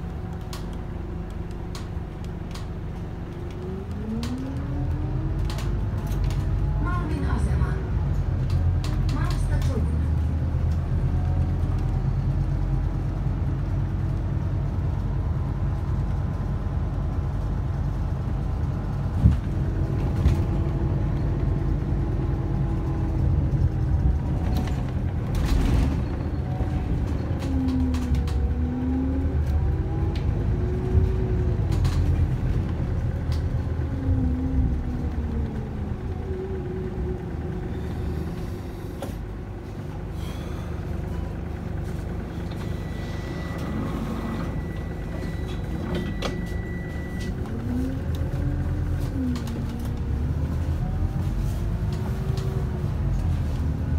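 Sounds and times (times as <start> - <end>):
bus diesel engine with whine: 0.0 - 53.9.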